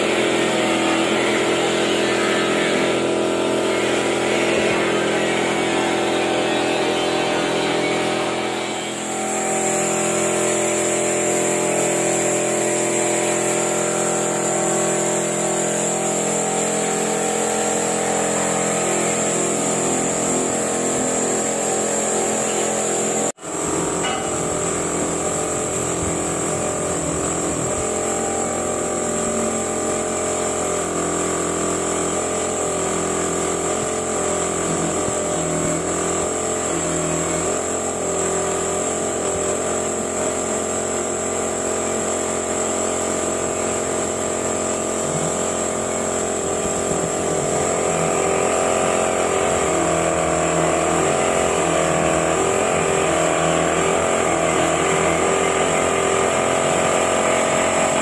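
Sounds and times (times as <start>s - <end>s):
air compressor running: 0.0s - 58.0s
paint spray gun hissing: 0.0s - 58.0s.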